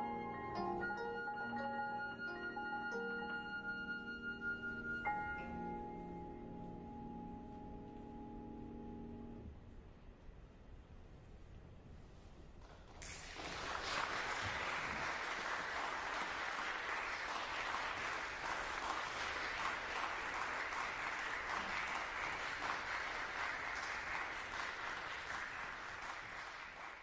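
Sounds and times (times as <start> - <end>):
audience applauding: 12.7 - 27.0.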